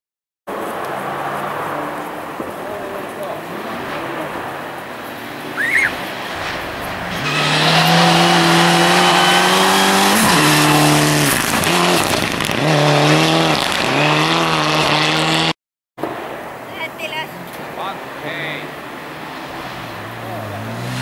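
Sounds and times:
rally car engine revving: 0.5s - 15.5s, 18.4s - 21.0s
short high rising squeak: 5.5s - 6.0s.

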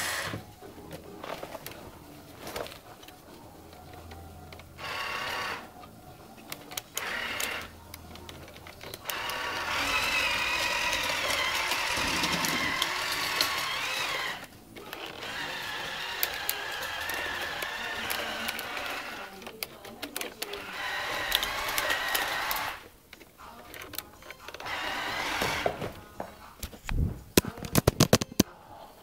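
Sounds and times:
toy electric motors whining: 0.0s - 0.6s, 2.6s - 22.9s, 23.7s - 25.9s.

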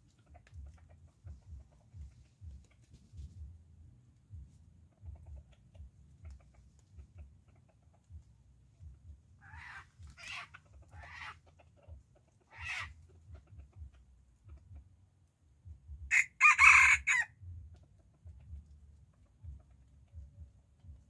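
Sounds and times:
rooster clucking: 0.0s - 3.0s, 4.8s - 14.9s, 16.1s - 21.0s
rooster crowing: 16.1s - 17.3s.

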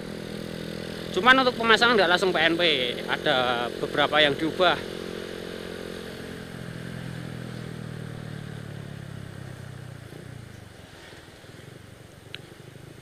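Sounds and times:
moped engine running: 0.0s - 13.0s.

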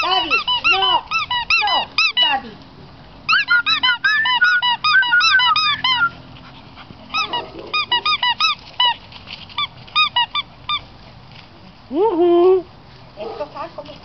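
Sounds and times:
squeaky dog toy squeaking: 0.0s - 2.4s, 3.3s - 6.1s, 7.1s - 9.0s, 9.6s - 10.8s.

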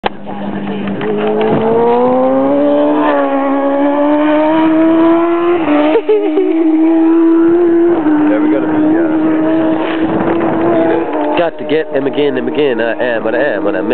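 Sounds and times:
motorcycle engine revving high: 0.5s - 13.9s.

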